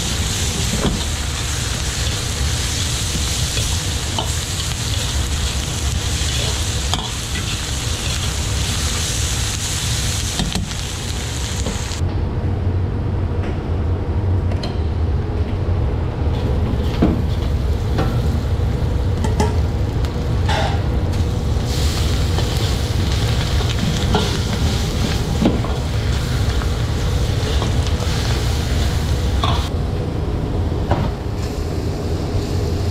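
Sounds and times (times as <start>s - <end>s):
food sizzling in a wok: 0.0s - 12.0s, 16.4s - 29.7s, 31.4s - 32.9s
metal spatula scraping a wok: 21.6s - 29.7s.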